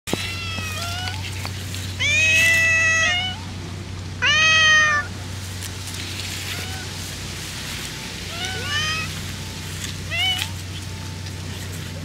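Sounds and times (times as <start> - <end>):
cat meowing: 0.1 - 1.4, 2.0 - 3.5, 4.2 - 5.1, 6.4 - 6.9, 8.3 - 9.2, 10.1 - 10.6.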